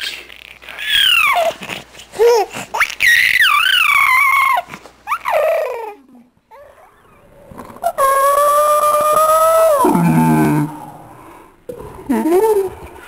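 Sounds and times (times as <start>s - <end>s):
baby squealing: 0.0s - 1.6s, 2.8s - 6.8s.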